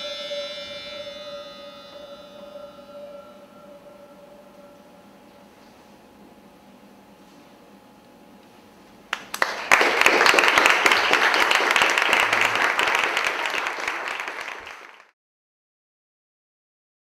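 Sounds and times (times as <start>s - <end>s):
audience applauding: 9.1s - 15.2s.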